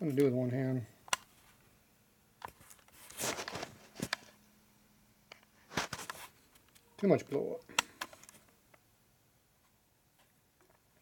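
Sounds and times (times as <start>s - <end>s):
handling sounds: 2.4s - 4.4s, 5.3s - 8.5s.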